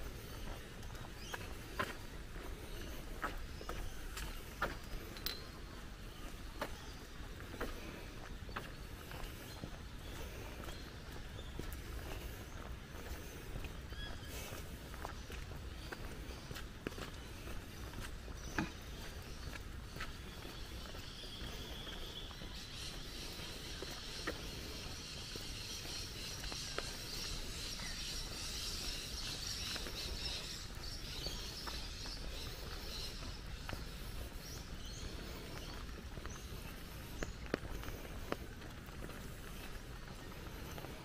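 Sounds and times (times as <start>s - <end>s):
footsteps on track: 0.0s - 41.0s
high-pitched wildlife chorus: 20.0s - 38.4s.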